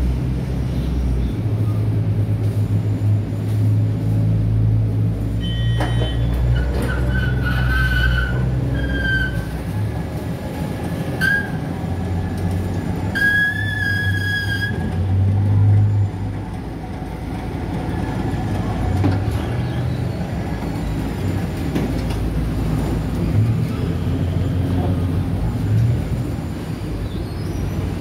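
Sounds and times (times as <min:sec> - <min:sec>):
ferry engines droning: 0:00.0 - 0:28.0
gangway squeaking: 0:05.4 - 0:10.0, 0:10.8 - 0:12.1, 0:13.0 - 0:16.1.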